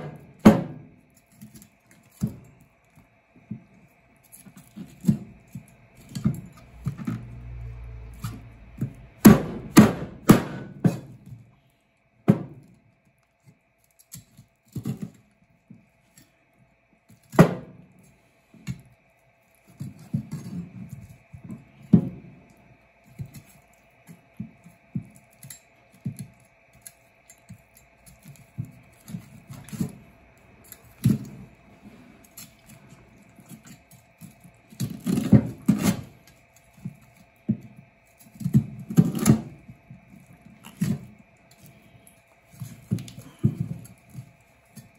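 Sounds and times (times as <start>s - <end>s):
cleaver chopping on cutting board: 9.2s - 11.1s.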